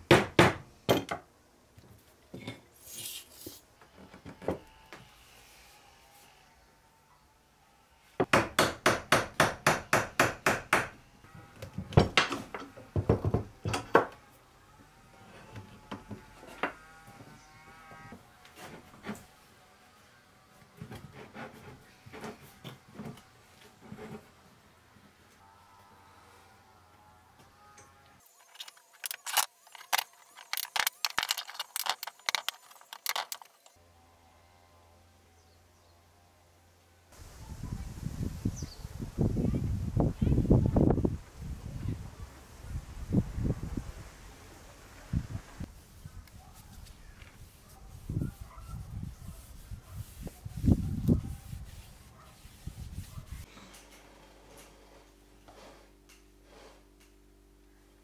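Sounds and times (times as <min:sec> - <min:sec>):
clatter of wood and metal clamps: 0:27.8 - 0:33.8
wooden joints knocked together: 0:28.5 - 0:33.7.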